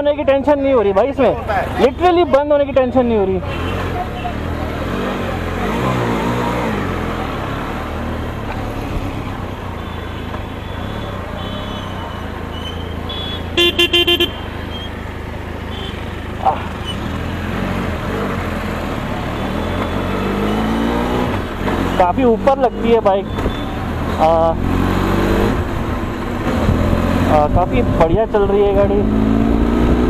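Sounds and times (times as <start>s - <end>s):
wind and road noise: 0.0s - 30.0s
short squeak: 9.8s - 13.5s, 14.7s - 15.0s, 16.8s - 17.1s, 23.3s - 23.8s
vehicle horn toots: 9.8s - 14.9s, 15.7s - 16.1s.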